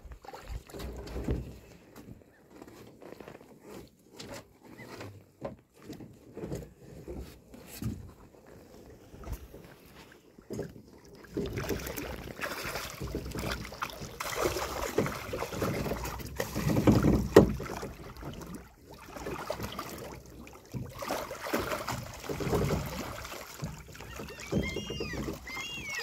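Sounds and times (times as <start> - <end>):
water splashing and dripping: 0.0 - 1.6, 10.5 - 26.0.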